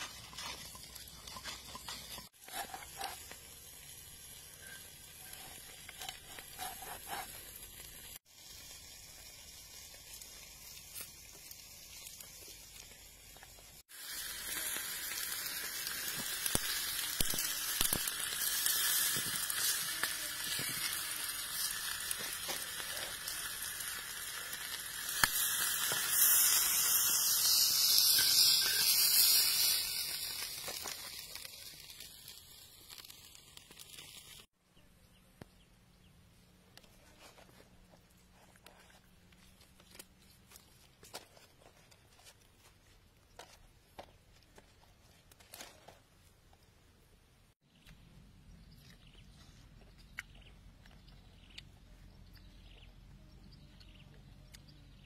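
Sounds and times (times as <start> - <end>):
meat sizzling on hot stone: 0.0 - 34.5.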